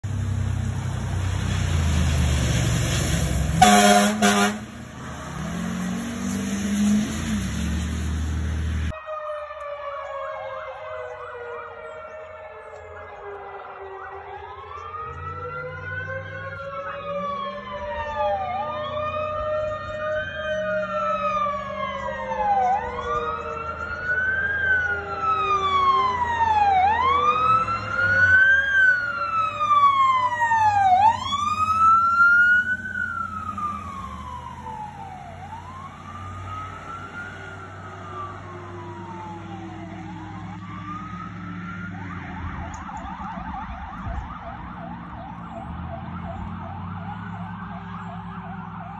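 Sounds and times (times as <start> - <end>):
sirens wailing: 0.0 - 48.9
truck engine rumble: 0.0 - 48.9
slower-gliding siren tone: 8.8 - 48.9
rapidly pulsing siren: 8.9 - 48.9.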